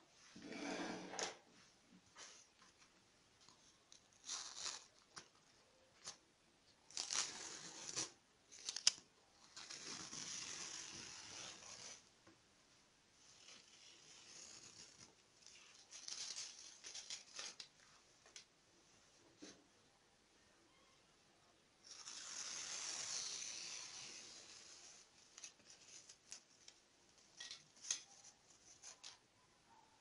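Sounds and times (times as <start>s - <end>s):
tape peeling off cloth: 3.9s - 5.4s, 6.9s - 12.0s, 13.3s - 17.7s, 21.8s - 29.2s.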